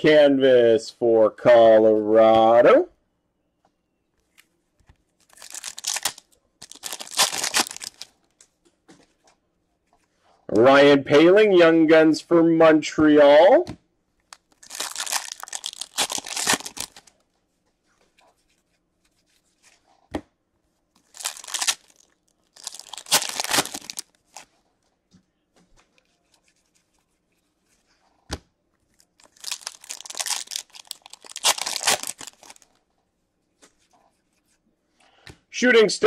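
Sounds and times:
foil wrapper tearing and crinkling: 5.2 - 8.1, 14.3 - 17.1, 21.0 - 24.4, 29.2 - 32.8.

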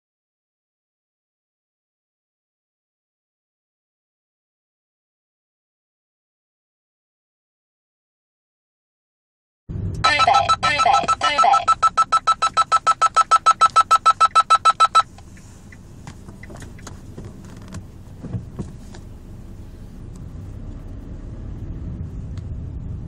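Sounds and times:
rapid electronic beeping alarm: 10.0 - 15.1
car pulling away rumble: 12.4 - 23.0.

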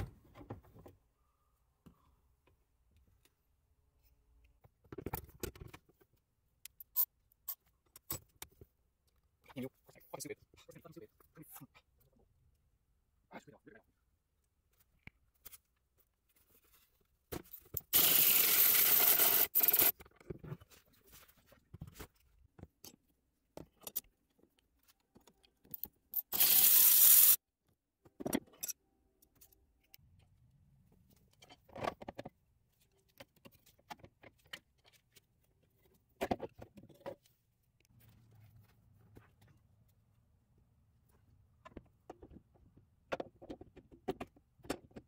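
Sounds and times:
cordless power tool spinning nut: 18.0 - 19.9, 26.2 - 27.4
tools clicking and knocking: 22.6 - 26.7, 41.6 - 45.0.

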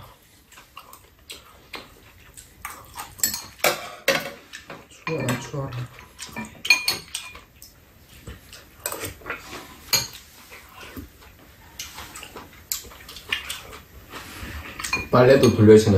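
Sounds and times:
utensils clinking against bowls: 2.6 - 7.8, 8.5 - 10.8, 14.7 - 15.9.

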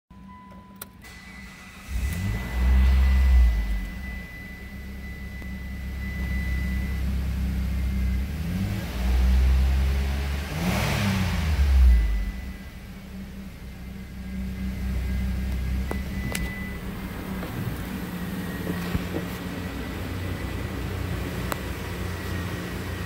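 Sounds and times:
car engine starting and idling: 0.2 - 23.0
car engine revving: 1.0 - 23.0.

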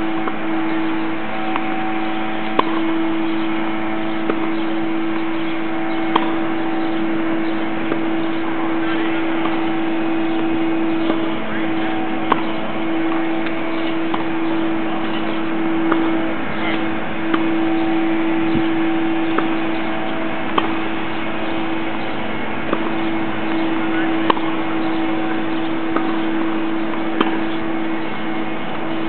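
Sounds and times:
low hum: 0.0 - 29.0
tennis balls struck by rackets: 2.5 - 2.8, 4.2 - 4.6, 6.1 - 6.4, 10.4 - 14.4, 15.1 - 17.6, 19.2 - 19.7, 20.4 - 24.6, 25.9 - 27.5.

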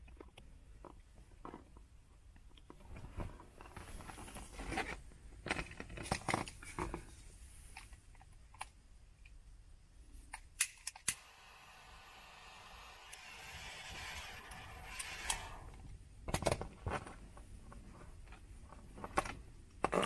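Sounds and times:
torch igniter clicks: 10.6 - 15.8
torch flame hiss: 11.1 - 15.9.

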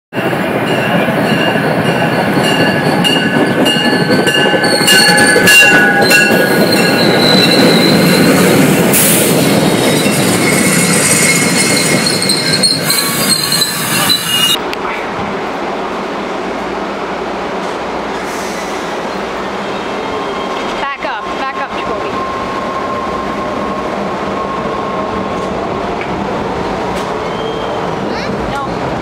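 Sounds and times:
train wheels rumbling on rails: 0.1 - 29.0
train wheels squealing: 1.0 - 14.6, 20.0 - 20.7, 27.2 - 27.9.

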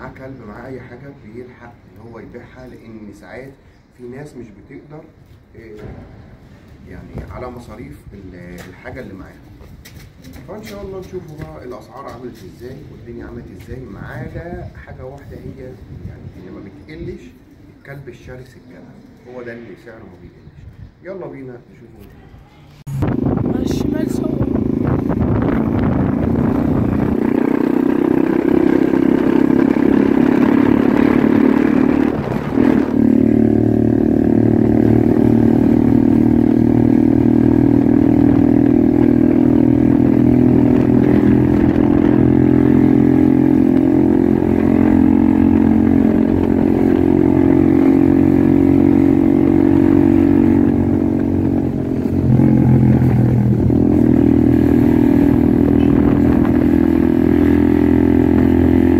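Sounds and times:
motorcycle engine running: 22.9 - 58.9.

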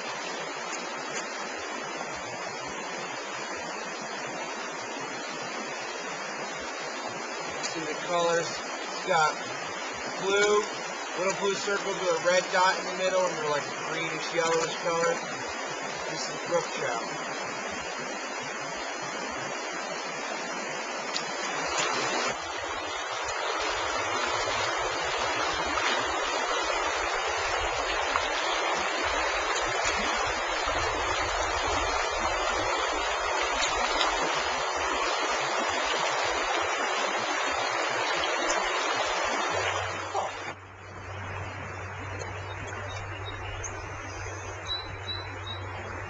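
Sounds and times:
stream water rushing: 0.0 - 46.0.

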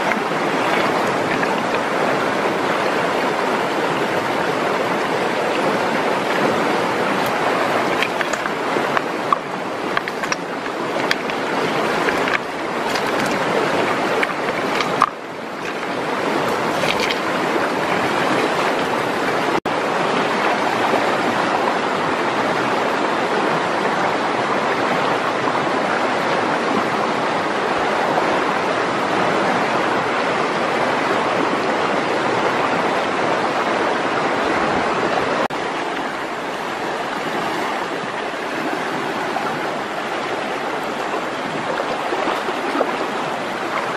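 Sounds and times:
river rushing over rocks: 0.0 - 43.9
stones knocking: 8.0 - 17.4.

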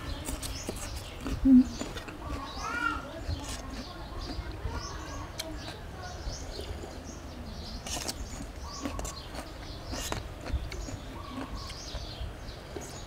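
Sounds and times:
birds chirping: 0.0 - 13.0
spoon clicks and crunches: 7.8 - 12.1.

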